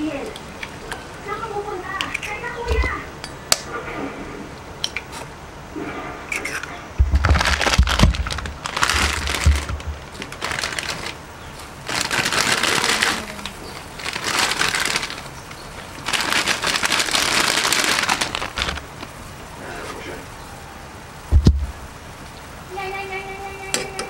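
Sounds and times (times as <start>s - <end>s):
low thumps: 6.9s - 10.4s, 21.2s - 22.1s
plastic packet crinkling: 7.2s - 19.1s.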